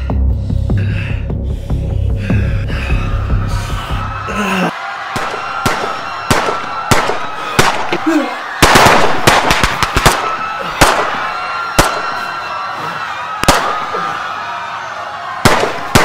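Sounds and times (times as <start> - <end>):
fireworks crackling: 5.2 - 8.0, 8.6 - 11.2, 13.4 - 13.8
fireworks bangs: 5.2 - 12.2, 13.4 - 14.0, 15.4 - 16.0.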